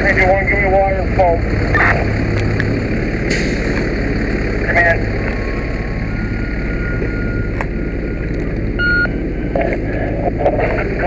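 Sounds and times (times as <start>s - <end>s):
engine rumble: 0.0s - 11.0s
short electronic beep: 6.1s - 9.1s.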